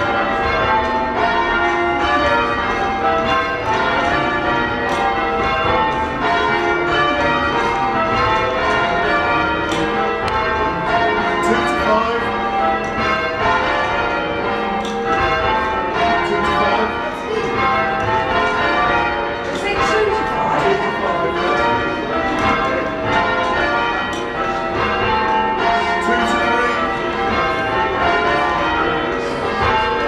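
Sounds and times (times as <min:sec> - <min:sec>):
church bells change ringing: 0:00.0 - 0:30.0.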